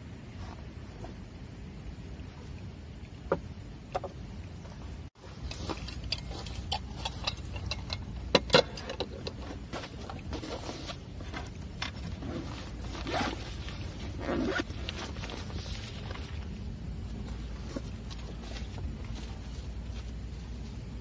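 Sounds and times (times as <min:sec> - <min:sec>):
bag zipper pulled open: 0:12.0 - 0:15.8.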